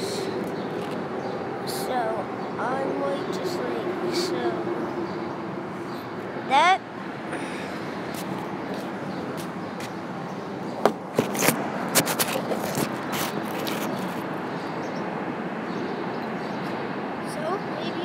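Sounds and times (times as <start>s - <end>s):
outdoor background noise: 0.0s - 18.0s.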